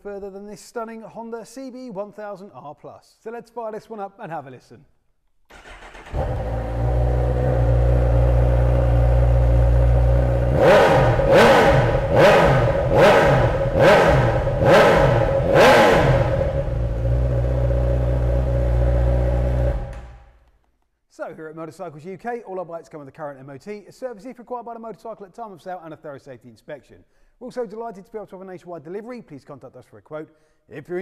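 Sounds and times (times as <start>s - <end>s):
motorcycle engine idling and revving: 5.5s - 20.2s.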